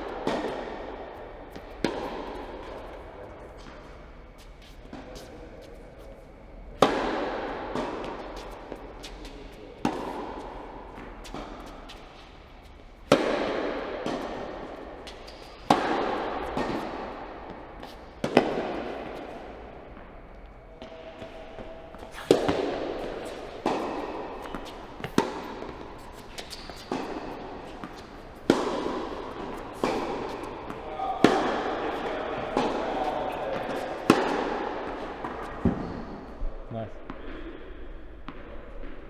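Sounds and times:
tennis ball bouncing: 0.0 - 3.0, 6.8 - 36.3, 38.2 - 39.0
tennis ball hit by racquets: 0.0 - 3.8, 6.8 - 36.4, 37.1 - 39.0.

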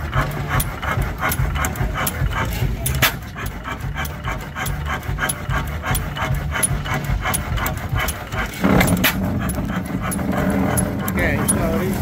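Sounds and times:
stationary engine clattering: 0.0 - 12.0
low rumble: 5.1 - 12.0.

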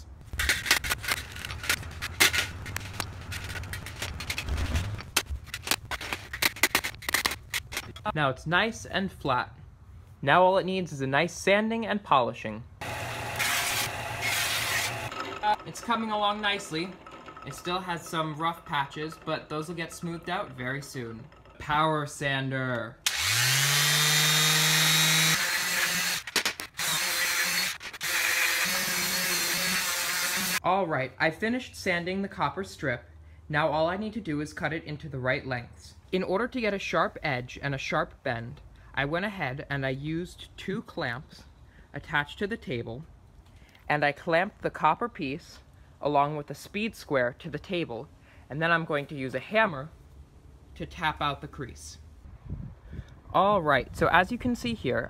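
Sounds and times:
electric palm sander running: 12.8 - 16.5, 23.1 - 26.2, 26.8 - 30.6
sandpaper hissing on metal: 28.3 - 30.6.

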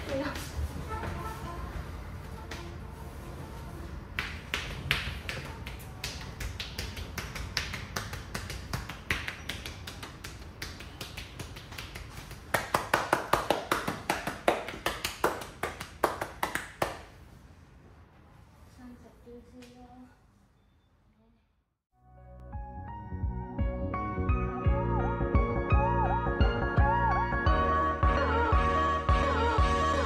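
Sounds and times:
hands slapping body: 4.2 - 13.0.

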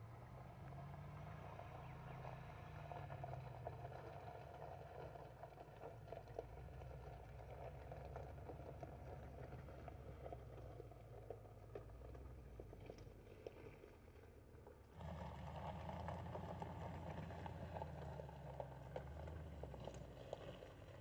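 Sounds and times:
car engine running at low speed: 0.0 - 21.0
tyres rolling over gravel: 15.0 - 21.0.

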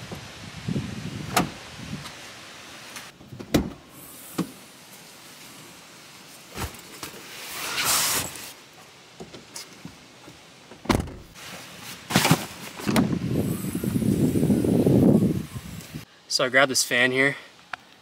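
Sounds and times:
sliding scraping rustle: 6.2 - 8.6
knocks and thumps: 10.8 - 11.3.

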